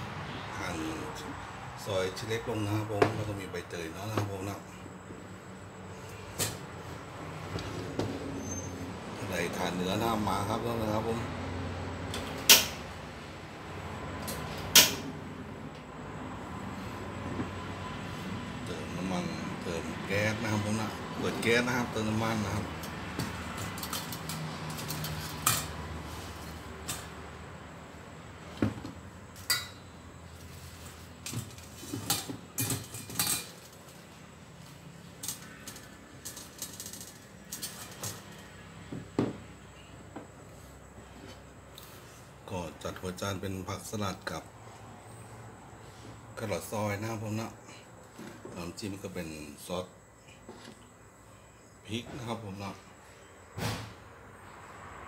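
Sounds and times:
dishes and utensils clinking: 31.8s - 33.7s.

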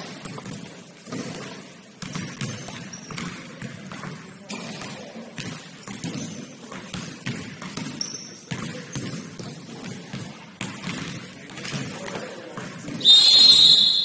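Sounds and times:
basketball bouncing: 0.0s - 13.0s
shoe squeak: 2.6s - 3.2s, 8.0s - 8.5s.

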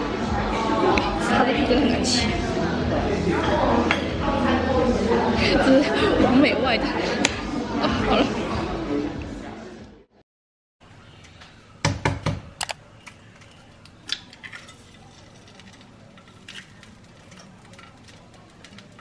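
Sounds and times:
egg cracking knocks and clinks: 12.0s - 19.0s.

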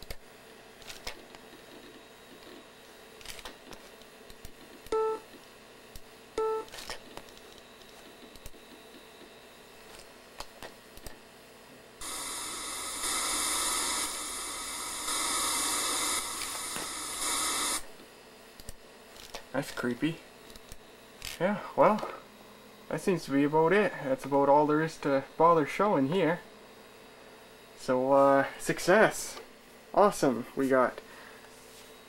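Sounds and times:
hiss of test noise: 12.0s - 17.8s.

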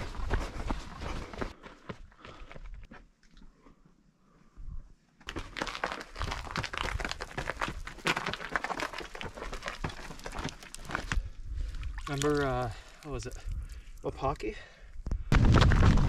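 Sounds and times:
running footsteps on gritty stone: 0.0s - 3.0s, 5.2s - 14.3s.

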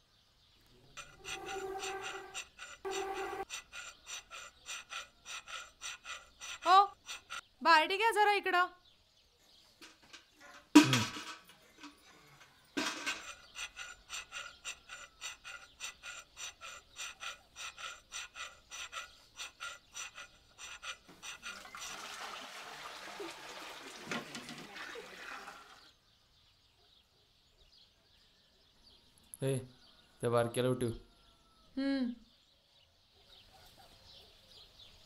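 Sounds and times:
ringing metal strokes: 1.0s - 3.4s
water splashing and pouring: 21.5s - 25.8s.

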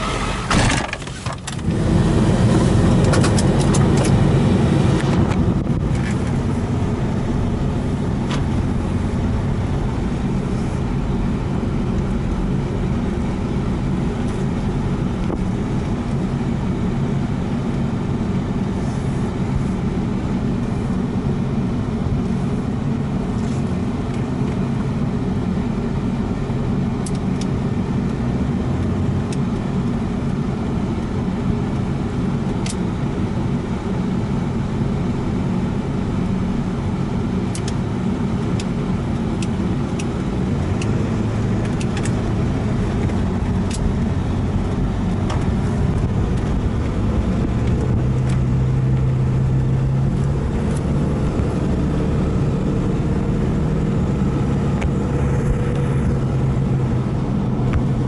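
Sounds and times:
diesel engine from inside cab: 0.0s - 58.0s.

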